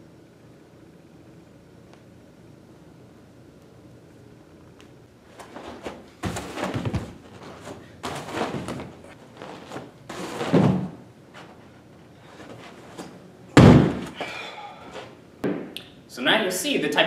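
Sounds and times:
thumps and scuffs on gym mats: 5.3 - 15.7
loud thud of landing on mat: 5.4 - 9.0, 9.7 - 11.0, 12.9 - 14.3.

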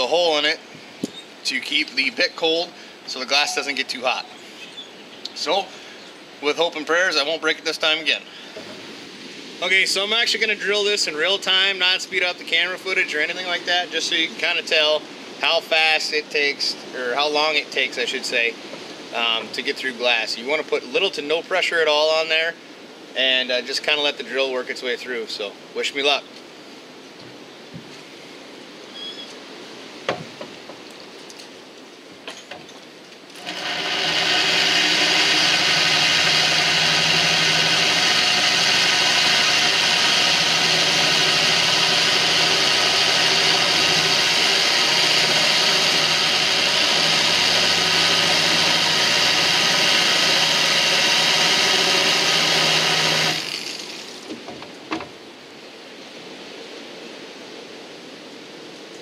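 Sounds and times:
electric drill cutting glass: 33.4 - 54.2.

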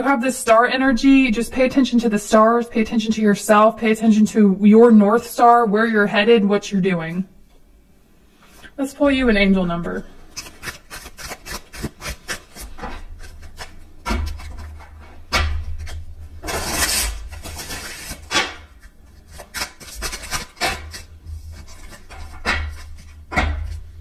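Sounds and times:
cards being shuffled: 10.4 - 14.8, 15.7 - 23.8.

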